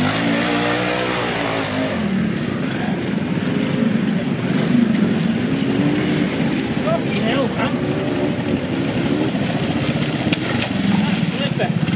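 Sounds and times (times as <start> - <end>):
motorcycle engine revving: 0.0 - 11.9.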